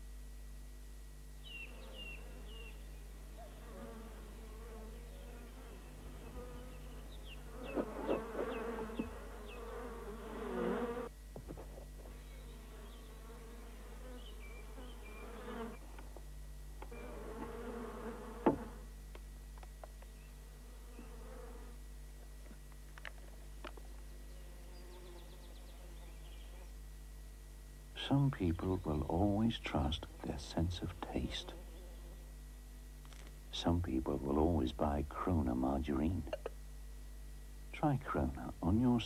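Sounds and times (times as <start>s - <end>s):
bees buzzing: 1.4s - 11.1s, 12.0s - 16.0s, 16.8s - 18.9s.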